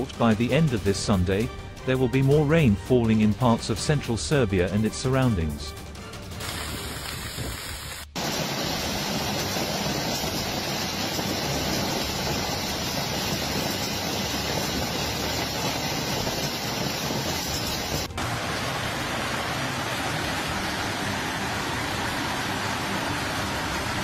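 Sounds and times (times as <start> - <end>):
hail and heavy rain pelting: 8.1 - 24.0.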